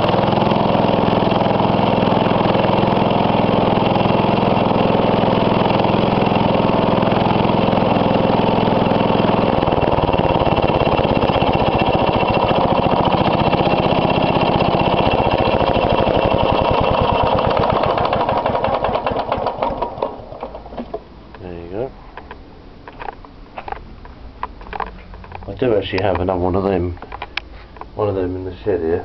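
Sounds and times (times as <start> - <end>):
lawn mower engine running: 0.0 - 21.1.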